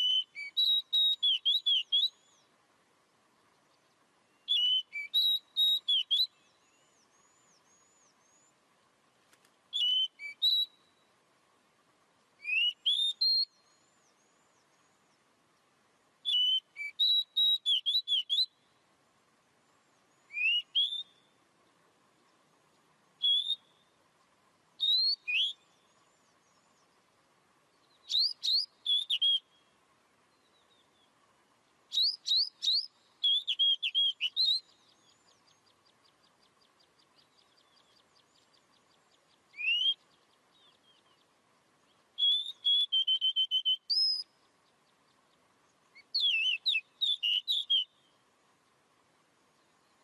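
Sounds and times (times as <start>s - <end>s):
bird whistling song: 0.0s - 2.5s, 3.6s - 8.5s, 9.7s - 11.1s, 12.4s - 15.2s, 16.2s - 18.8s, 20.0s - 21.4s, 23.2s - 24.0s, 24.8s - 26.9s, 27.8s - 29.7s, 31.9s - 41.3s, 41.9s - 44.4s, 45.3s - 48.2s
faint rapid bird trill: 0.0s - 50.0s.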